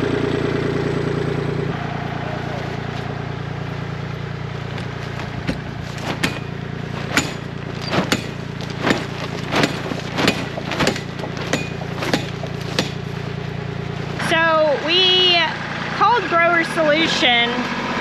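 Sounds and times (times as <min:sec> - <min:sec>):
steady low hum: 0:00.0 - 0:16.6
plastic sheeting snapping in wind: 0:04.5 - 0:13.2.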